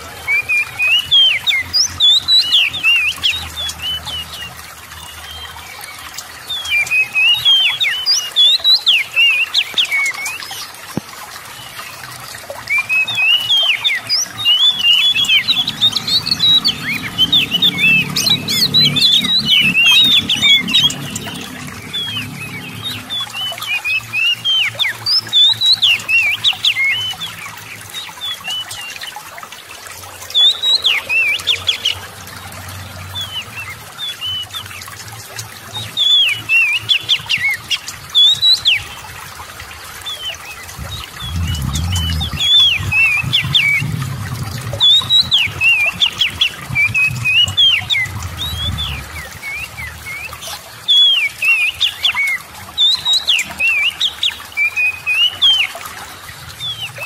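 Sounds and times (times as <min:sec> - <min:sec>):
water trickling: 0:00.0 - 0:57.0.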